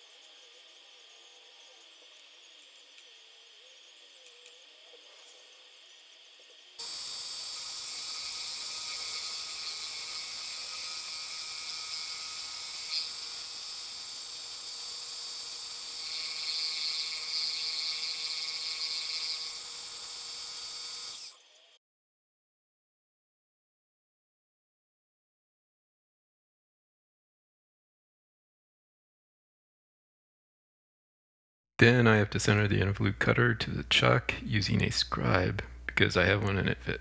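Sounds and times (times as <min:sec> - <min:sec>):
mini-mill machine whine: 0:00.0 - 0:21.8
hiss of metal cutting: 0:06.8 - 0:21.4.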